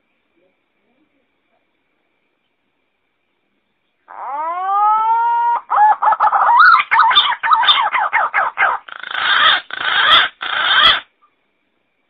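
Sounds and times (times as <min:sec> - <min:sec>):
green pigeon calling: 0:04.0 - 0:11.3.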